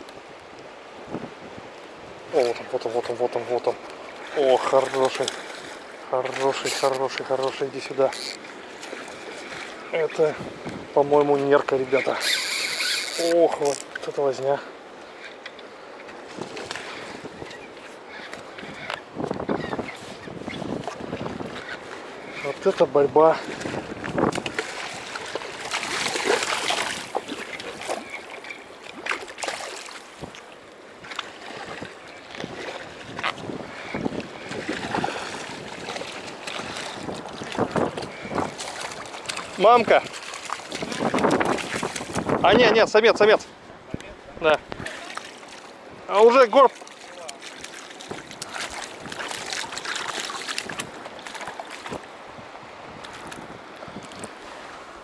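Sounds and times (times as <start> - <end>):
river water rushing: 0.0 - 55.0
short splashes and knocks: 2.4 - 14.3, 18.2 - 42.4, 44.7 - 52.2
fish thrashing in water: 23.6 - 30.4, 34.4 - 42.3, 46.8 - 52.0.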